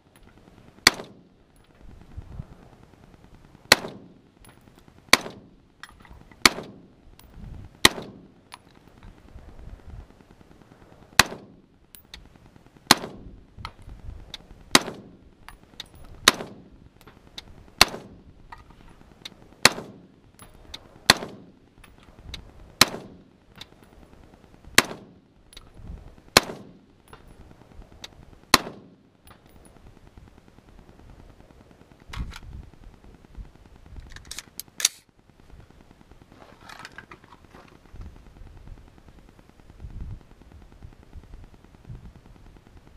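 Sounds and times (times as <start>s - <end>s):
rifle shots: 0.8s - 1.3s, 3.7s - 4.2s, 5.1s - 5.6s, 6.4s - 7.0s, 7.8s - 8.4s, 11.2s - 11.6s, 12.9s - 13.3s, 14.7s - 15.2s, 16.2s - 16.7s, 17.8s - 18.3s, 19.6s - 20.2s, 21.0s - 21.6s, 22.8s - 23.3s, 24.8s - 25.2s, 26.3s - 26.8s, 28.5s - 29.0s
rifle handling clicks: 34.0s - 35.1s.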